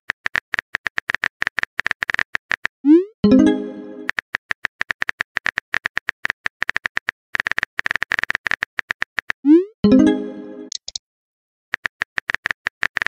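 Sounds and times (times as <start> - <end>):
message sent chime: 3.2 - 4.1, 9.8 - 10.7.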